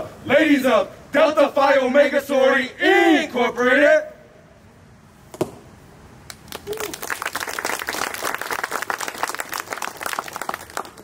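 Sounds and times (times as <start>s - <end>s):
crowd applauding: 6.3s - 11.0s.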